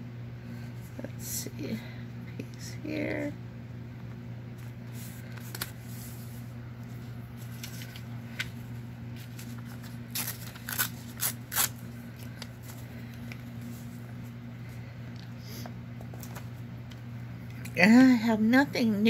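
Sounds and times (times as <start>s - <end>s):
steady low hum: 0.0s - 19.0s
paper rustling: 4.6s - 14.0s.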